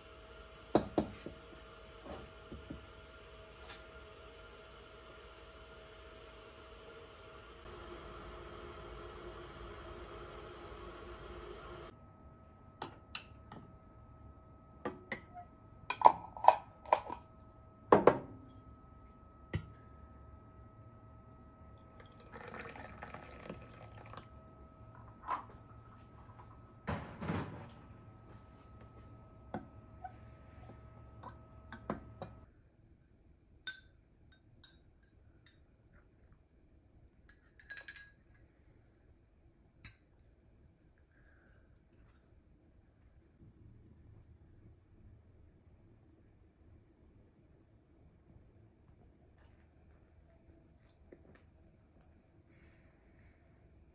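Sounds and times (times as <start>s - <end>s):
liquid pouring into glass: 21.8s - 24.6s
metal spoon clinking on glass: 37.3s - 38.3s.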